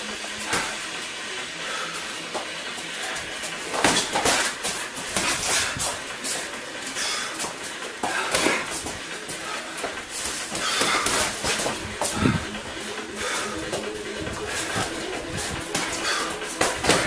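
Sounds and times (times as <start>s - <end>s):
punches and kicks thudding: 3.8s - 5.9s.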